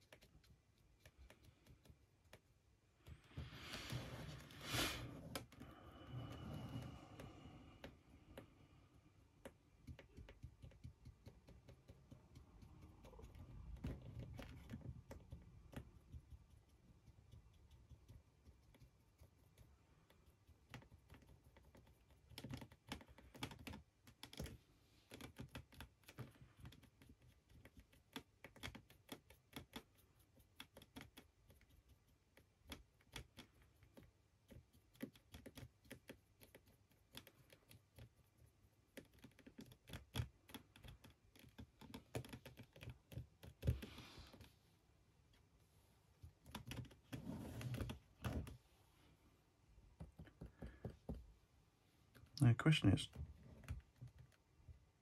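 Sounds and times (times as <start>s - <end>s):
paintbrush light clicks and taps: 9.4s - 38.2s.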